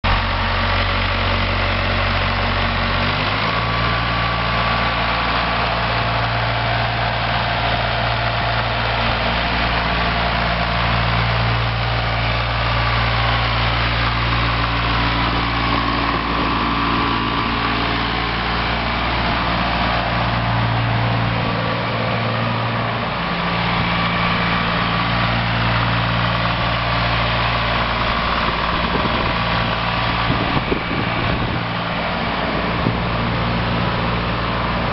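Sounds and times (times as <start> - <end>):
tractor diesel engine running: 0.0 - 34.9.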